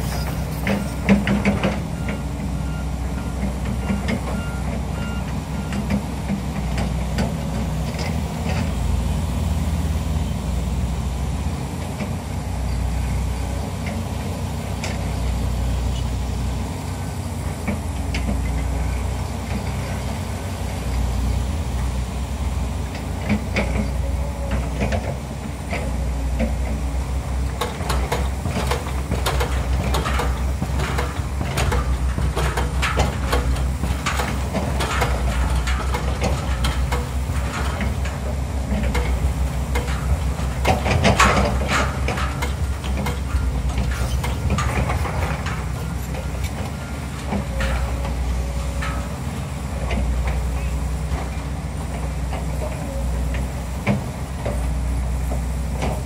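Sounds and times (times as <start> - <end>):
diesel engines running: 0.0 - 56.0
knocks and clanks: 27.4 - 54.7.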